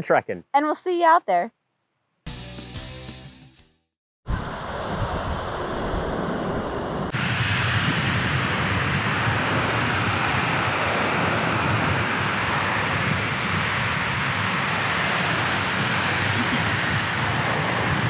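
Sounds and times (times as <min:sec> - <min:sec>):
surf breaking on a beach: 0:04.3 - 0:18.0
wind buffeting microphone: 0:04.3 - 0:18.0.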